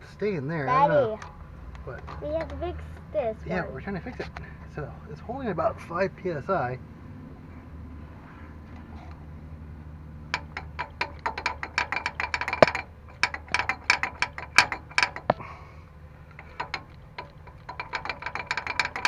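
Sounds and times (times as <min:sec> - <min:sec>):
hand vacuum pump clicking: 0:10.3 - 0:15.4, 0:16.3 - 0:19.0.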